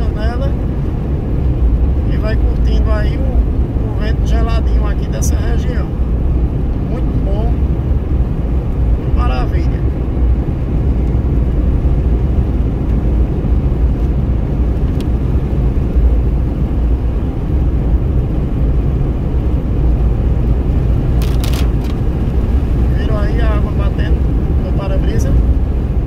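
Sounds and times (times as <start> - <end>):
car tyre and engine rumble: 0.0 - 26.0
sharp clicks: 21.2 - 22.0.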